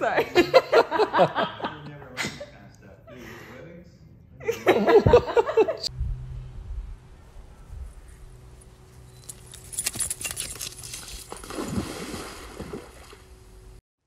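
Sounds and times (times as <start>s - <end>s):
water sloshing: 9.3s - 13.4s
dog splashing into pool: 10.3s - 13.3s.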